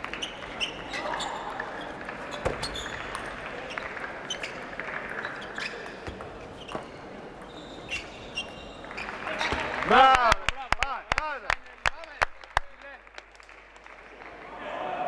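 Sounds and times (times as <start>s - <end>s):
shoes squeaking: 0.0s - 9.9s
crowd hum in a large hall: 0.0s - 15.0s.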